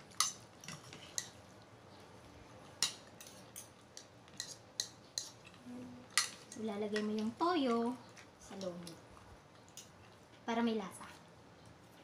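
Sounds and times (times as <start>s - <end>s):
cutlery clinking on a plate: 2.8s - 7.1s.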